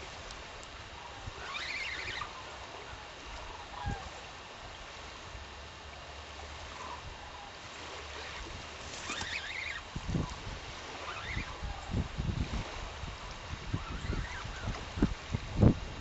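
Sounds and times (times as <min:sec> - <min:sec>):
lake water washing: 0:00.0 - 0:16.0
wavering chirp: 0:01.4 - 0:02.4, 0:09.0 - 0:09.8, 0:11.0 - 0:11.9
wind buffeting microphone: 0:08.2 - 0:16.0.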